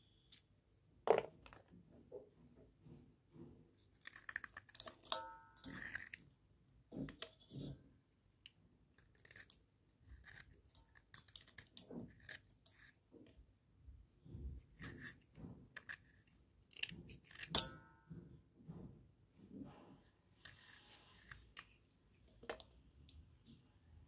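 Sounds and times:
blade scraping a slate pencil: 0:05.6 - 0:06.3, 0:09.0 - 0:13.3, 0:14.8 - 0:17.6, 0:20.4 - 0:21.9.

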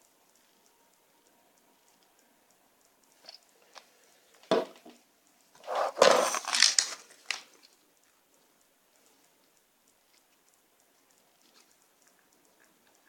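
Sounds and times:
can set down on table: 0:04.5 - 0:05.0
plastic blister pack crinkling: 0:05.6 - 0:07.8
small clicks: 0:06.2 - 0:13.0.

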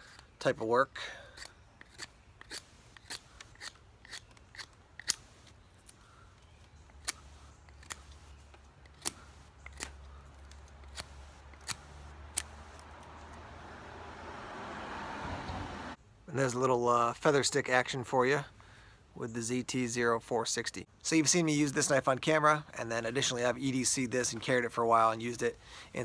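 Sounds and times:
knife shaving wood: 0:01.1 - 0:13.1.

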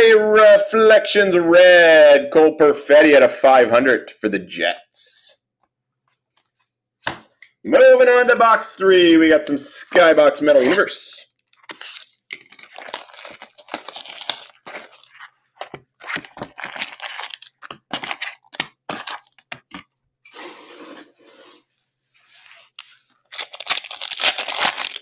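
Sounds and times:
packaging rustling and ripping: 0:11.4 - 0:19.8, 0:22.4 - 0:25.0
foil pack tearing: 0:11.5 - 0:15.3, 0:16.0 - 0:19.4, 0:23.2 - 0:25.0.

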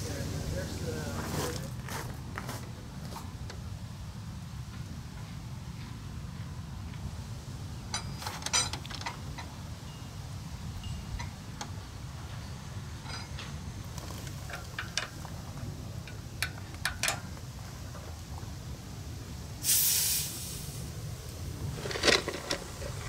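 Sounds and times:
metal hose fittings clicking: 0:13.0 - 0:15.4, 0:16.0 - 0:17.3
steady low rumble: 0:20.2 - 0:23.0.

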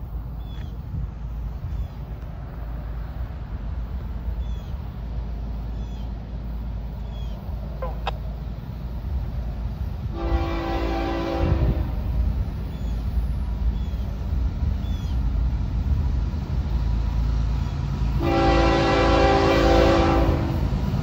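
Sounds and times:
low rumble of locomotives: 0:00.0 - 0:21.0
locomotive air horn: 0:10.1 - 0:12.1, 0:18.2 - 0:20.7.

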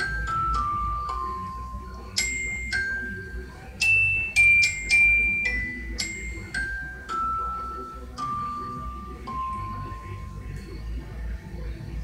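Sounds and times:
glockenspiel-like bell melody: 0:00.0 - 0:11.1.

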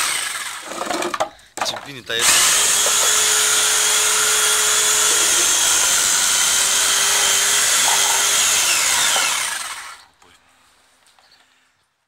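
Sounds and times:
electric saw cutting wood: 0:00.0 - 0:01.1, 0:02.2 - 0:10.1.

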